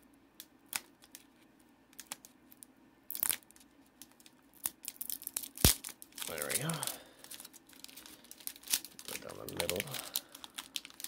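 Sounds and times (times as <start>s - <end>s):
foil pack crinkling: 3.1s - 11.0s.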